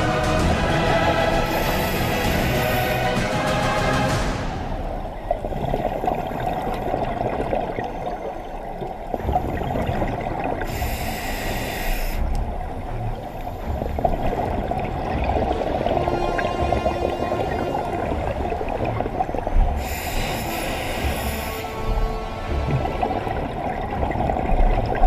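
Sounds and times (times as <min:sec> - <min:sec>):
underwater bubbling exhaled air: 0:00.0 - 0:03.1, 0:04.7 - 0:25.0
regulator inhale hiss: 0:01.5 - 0:03.1, 0:10.6 - 0:12.4, 0:19.8 - 0:22.0.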